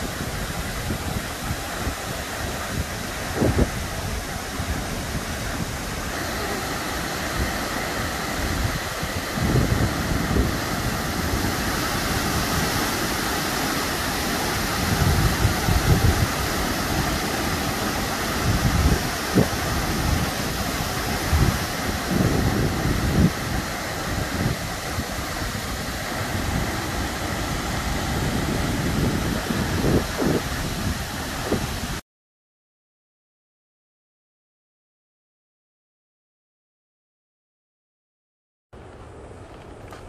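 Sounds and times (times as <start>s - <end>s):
waterfall rushing: 0.0s - 32.0s
wind buffeting microphone: 0.0s - 32.0s.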